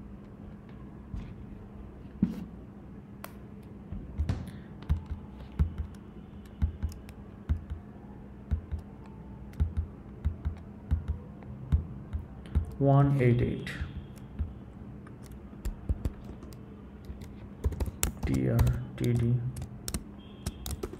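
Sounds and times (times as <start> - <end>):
faint steady hum: 0.0 - 20.9
keyboard and mouse clicks: 3.2 - 7.8, 8.5 - 12.8, 14.1 - 20.9.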